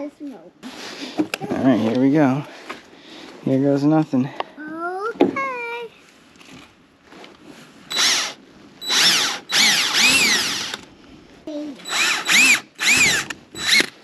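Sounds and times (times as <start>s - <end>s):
power drill driving into plastic: 7.9s - 10.8s, 11.8s - 14.0s.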